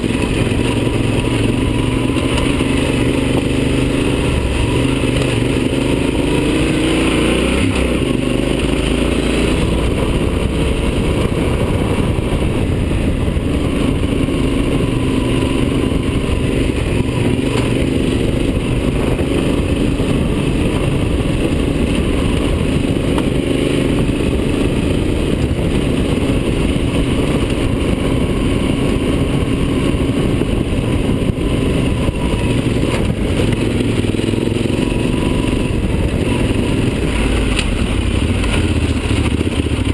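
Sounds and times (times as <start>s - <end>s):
dense low rumble: 0.0s - 39.9s
motorcycle engine running: 0.0s - 39.9s.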